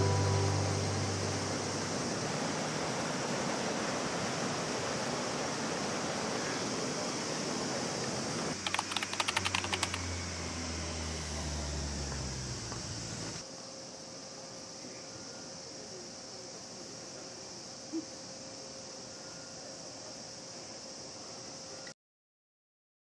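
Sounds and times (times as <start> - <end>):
music: 0.0 - 2.2
low hum: 0.0 - 3.2, 8.6 - 13.4
steady background hiss: 0.0 - 21.9
rapid clicking: 8.5 - 10.2.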